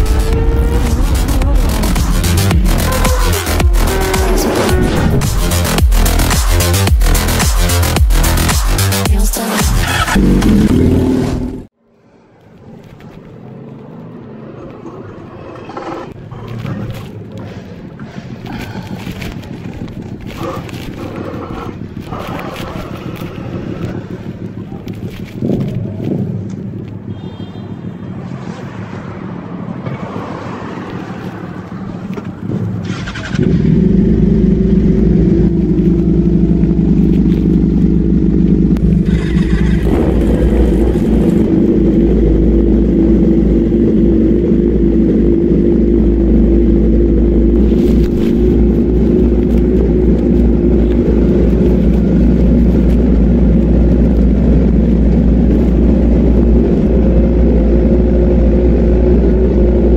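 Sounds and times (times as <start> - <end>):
motorcycle engine running: 0.0 - 11.7, 32.3 - 59.9.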